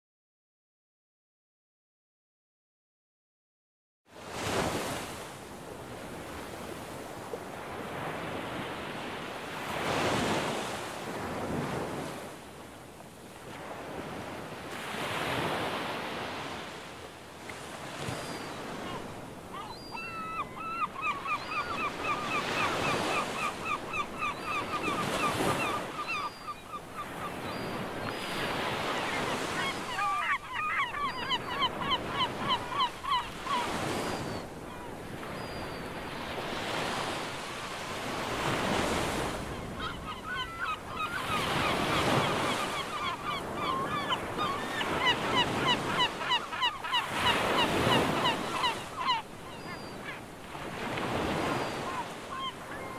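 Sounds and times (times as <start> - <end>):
birds calling: 18.0 - 37.8, 38.4 - 52.9.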